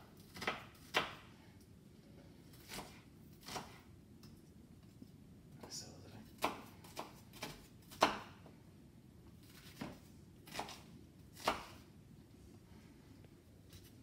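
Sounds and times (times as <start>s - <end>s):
knife chopping on cutting board: 0.2s - 1.3s, 2.5s - 3.8s, 6.4s - 8.4s, 9.5s - 11.8s.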